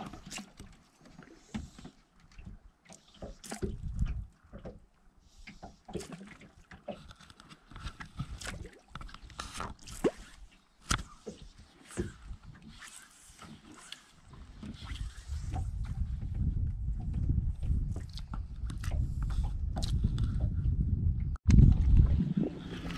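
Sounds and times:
waves lapping against boat hull: 0.0 - 20.7, 21.3 - 22.9.

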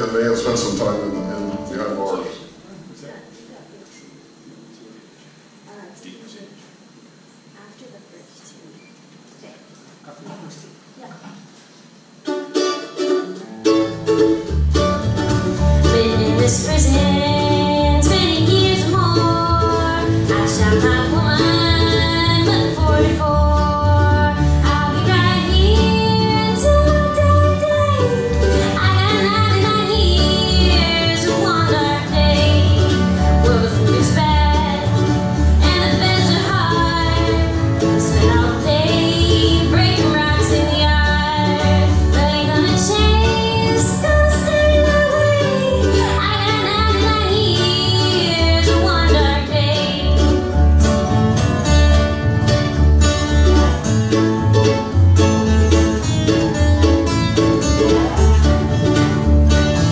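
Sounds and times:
fiddle: 0.0 - 2.4, 12.3 - 59.9
upright bass: 0.0 - 2.6, 13.4 - 59.9
mandolin: 0.0 - 2.7, 12.1 - 59.9
acoustic guitars: 0.0 - 5.4, 11.2 - 59.9
woman singing: 15.8 - 50.4.

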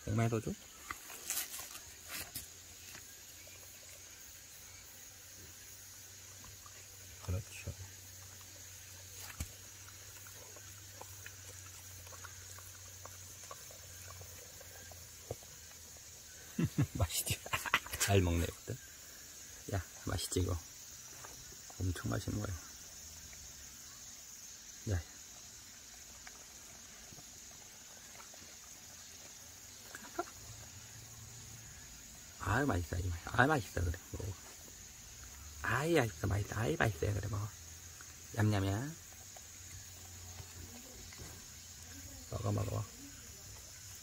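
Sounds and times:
insects humming: 0.0 - 44.0
dog chewing and licking: 9.2 - 15.8.

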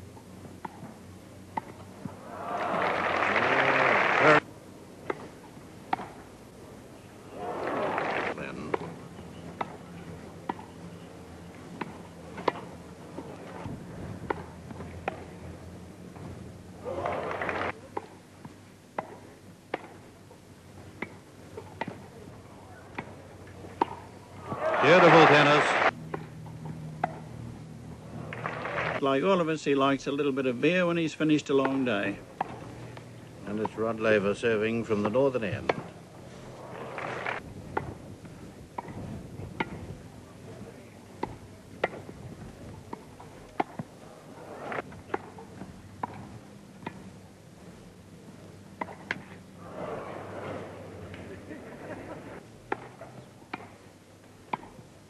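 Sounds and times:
tennis ball struck by rackets: 0.6 - 1.9, 5.0 - 6.2, 11.7 - 13.4, 14.2 - 15.4, 17.9 - 20.1, 20.9 - 22.1, 22.9 - 24.6, 26.1 - 27.3, 34.9 - 36.0, 38.8 - 39.0, 39.6 - 39.9, 41.2 - 42.2, 42.8 - 43.9, 44.7 - 47.1, 48.8 - 49.4, 52.6 - 53.8, 54.4 - 54.8
faint background murmur: 6.1 - 13.7, 16.8 - 25.1, 37.9 - 55.0.

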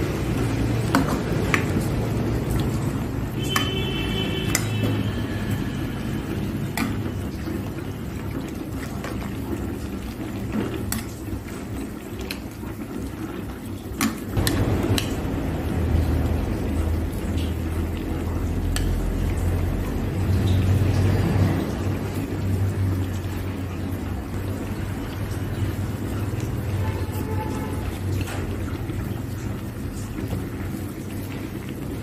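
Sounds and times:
utensils clinking against pot: 4.4 - 5.1.

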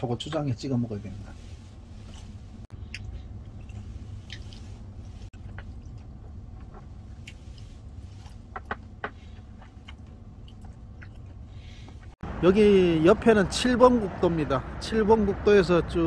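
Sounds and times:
steady low hum: 0.0 - 16.0
soft chewing: 1.2 - 12.2.

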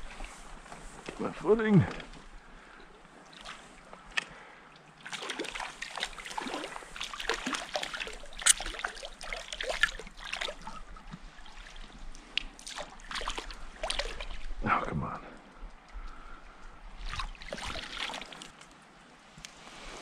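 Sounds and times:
fish splashing in water: 4.8 - 14.5, 17.0 - 18.6.

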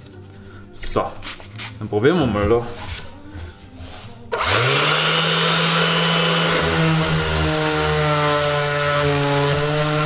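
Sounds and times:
orbital sander whining: 4.4 - 10.0.

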